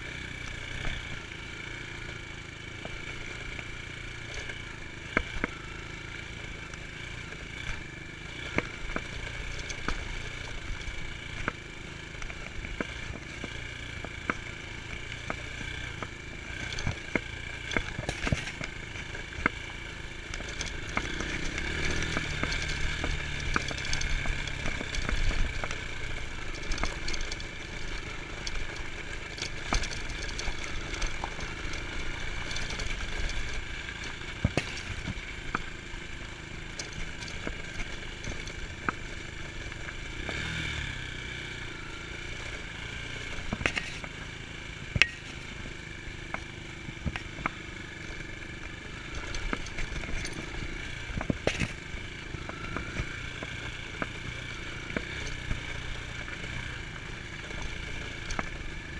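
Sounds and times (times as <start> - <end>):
dirt bike engine running: 0.0 - 58.9.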